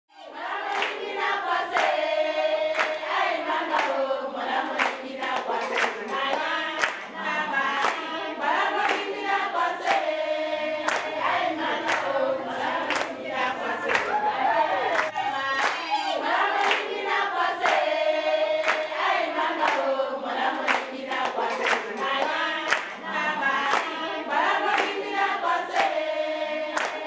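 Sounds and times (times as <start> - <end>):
group of voices singing: 0.1 - 27.0
hand clapping: 0.6 - 2.0, 2.8 - 4.0, 4.6 - 7.1, 7.7 - 8.1, 8.7 - 10.1, 10.8 - 11.1, 11.8 - 13.2, 13.8 - 14.2, 16.5 - 17.9, 18.6 - 19.9, 20.6 - 23.0, 23.6 - 24.0, 24.6 - 26.0, 26.7 - 27.0.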